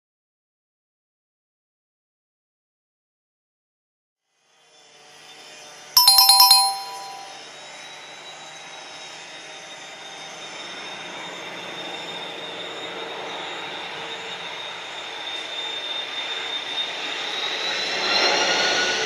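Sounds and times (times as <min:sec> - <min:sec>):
quick chime notes: 0:06.0 - 0:07.3.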